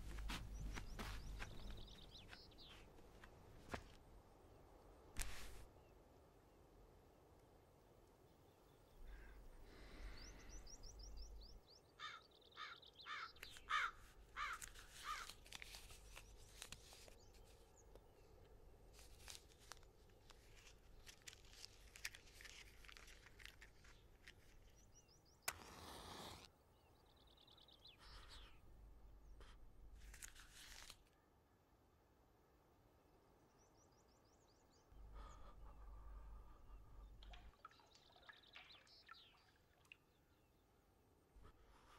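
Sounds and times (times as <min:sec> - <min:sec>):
birds calling: 0:00.1 - 0:02.9, 0:08.7 - 0:15.3
match striking and hissing: 0:25.4 - 0:26.5.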